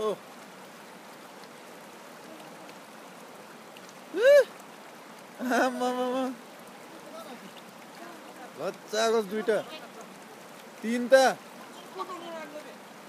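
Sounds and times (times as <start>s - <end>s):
stream running over rocks: 0.0s - 13.0s
person calling: 4.1s - 4.5s, 5.4s - 7.4s.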